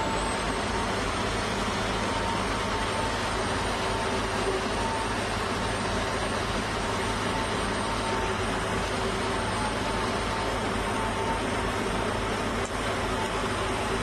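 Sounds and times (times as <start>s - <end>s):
diesel engine drone: 0.0s - 14.0s
faint steady whine: 0.0s - 14.0s.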